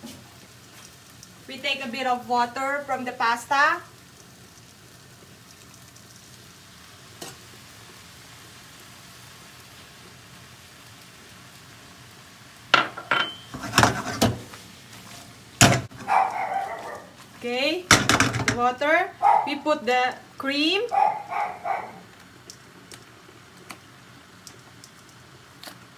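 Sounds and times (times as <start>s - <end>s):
water sizzling in a frying pan: 0.0s - 25.9s
pan clattering and knocking: 12.8s - 14.5s, 17.9s - 18.6s.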